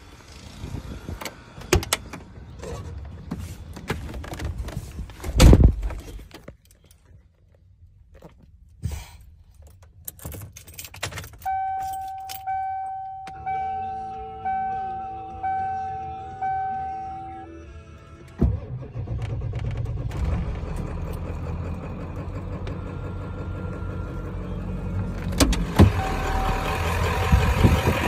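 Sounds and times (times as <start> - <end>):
keys jangling: 9.6 - 12.5
dashboard warning chime dinging: 11.4 - 17.6.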